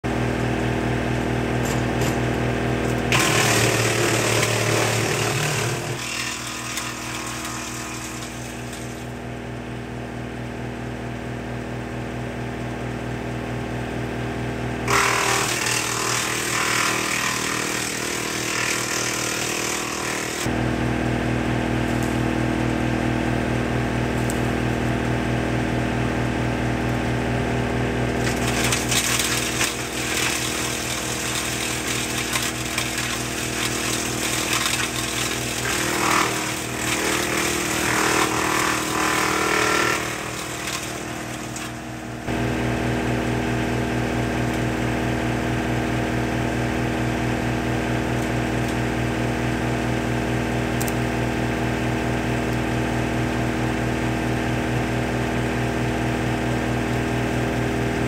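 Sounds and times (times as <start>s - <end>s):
wood chipper chipping branches: 0.4s - 9.4s, 14.8s - 20.7s, 27.8s - 44.8s
tractor engine hum: 20.4s - 37.9s, 40.2s - 58.0s.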